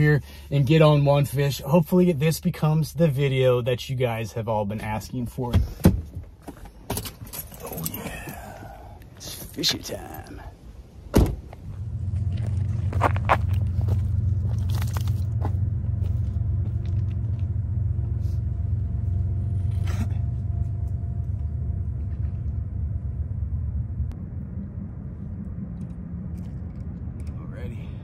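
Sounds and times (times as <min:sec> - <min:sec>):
steady low rumble: 0:00.0 - 0:28.0
footsteps on loose rocks: 0:12.1 - 0:17.5.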